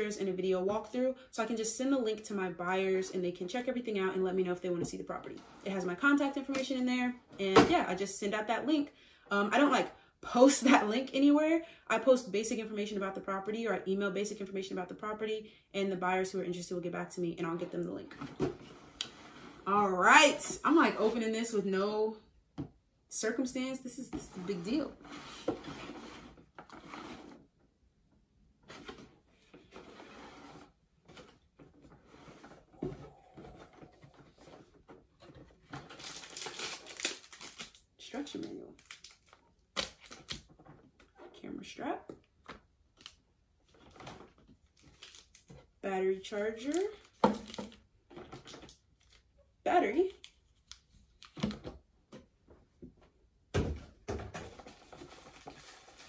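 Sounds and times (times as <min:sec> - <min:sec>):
box sliding out of sleeve: 0:24.4 - 0:27.4, 0:29.7 - 0:30.8.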